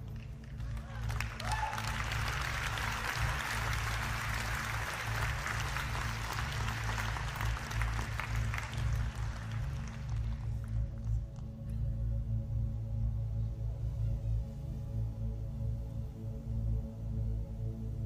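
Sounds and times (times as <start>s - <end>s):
audience applauding: 0.0s - 11.1s
background music with bass: 0.0s - 18.0s.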